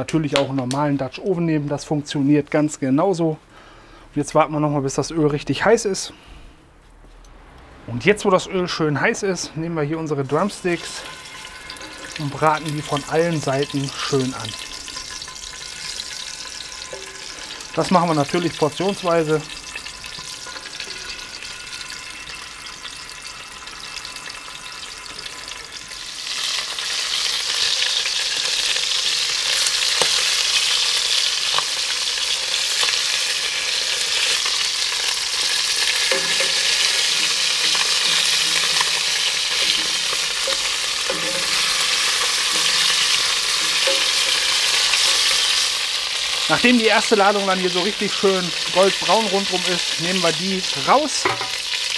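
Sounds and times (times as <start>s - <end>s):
chicken frying in hot oil: 10.5s - 51.9s
metal tongs clicking: 36.0s - 45.6s.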